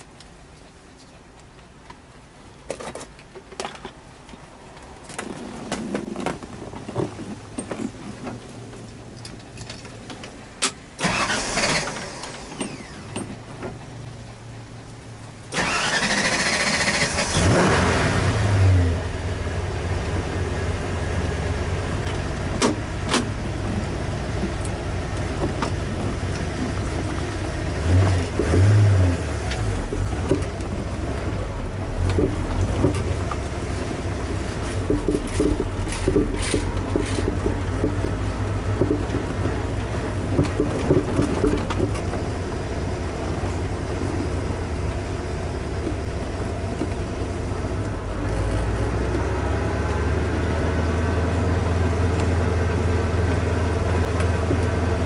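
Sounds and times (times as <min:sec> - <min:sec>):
car engine starting and running: 0:06.9 - 0:55.0.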